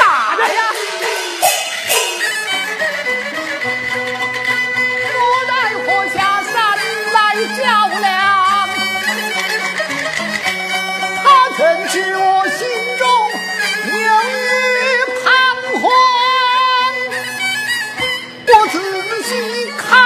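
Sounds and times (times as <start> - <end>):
sharp percussion strikes: 0.0 - 5.2
fiddle melody: 0.0 - 20.0
person singing: 11.2 - 17.1, 18.5 - 20.0.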